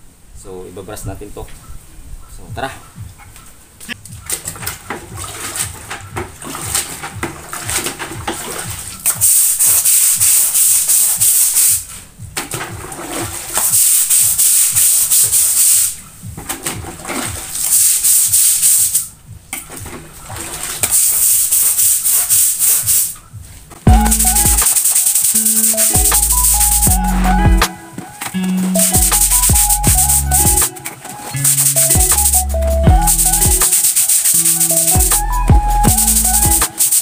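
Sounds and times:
brush scrubbing wet concrete: 4.2 - 12.0, 12.6 - 16.0, 20.0 - 23.2, 31.2 - 35.2.

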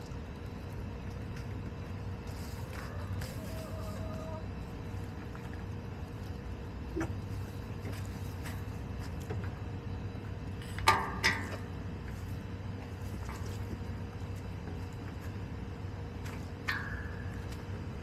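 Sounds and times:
hens pecking and scratching: 0.0 - 18.0
low background hum: 0.0 - 18.0
hens clucking: 2.5 - 4.8.

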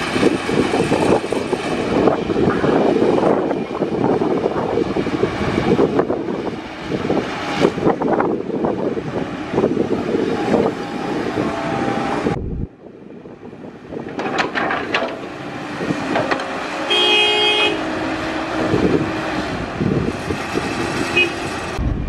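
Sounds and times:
excavators running: 0.0 - 22.0
vehicle horn toot: 16.9 - 17.9, 21.1 - 21.5.

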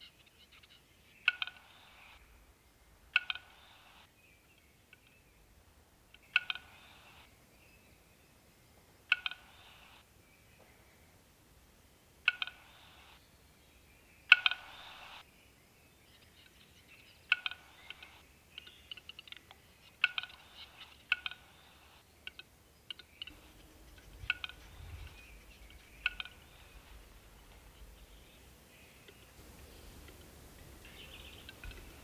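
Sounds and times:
bird sharp clicks: 0.0 - 2.3, 3.1 - 5.2, 6.1 - 7.3, 9.1 - 10.0, 12.2 - 13.2, 14.3 - 15.2, 17.2 - 28.4, 29.0 - 32.0
bird scraping hiss: 3.4 - 4.1, 9.4 - 10.0, 12.5 - 13.2, 14.5 - 15.2, 20.2 - 22.0.

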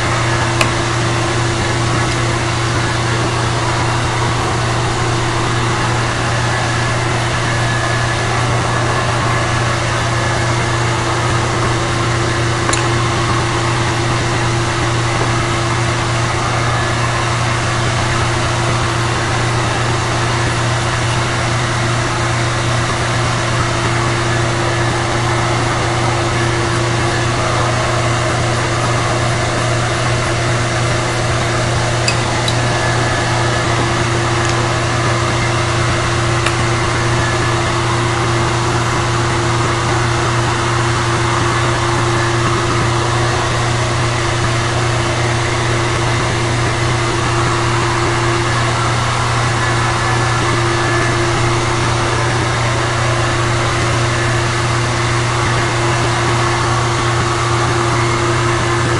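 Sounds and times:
machine hum and hiss: 0.0 - 58.9.

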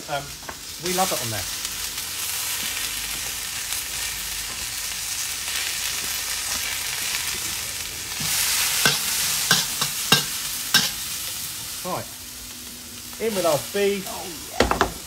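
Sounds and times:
vegetables sizzling in a wok: 0.0 - 15.0
utensil knocking against wok: 8.8 - 11.0.

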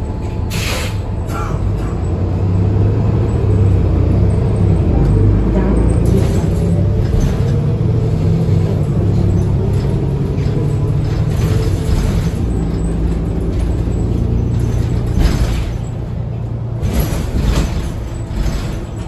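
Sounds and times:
bus body rattles and creaks: 0.0 - 19.0
bus engine droning: 0.0 - 19.0.

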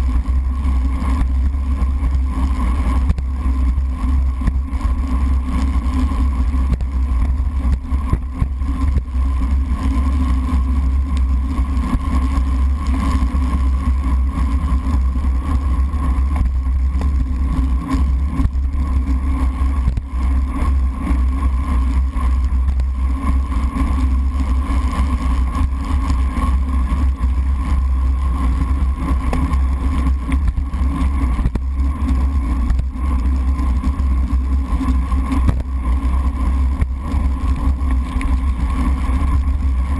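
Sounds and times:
muffled wind and road rumble: 0.0 - 39.9.

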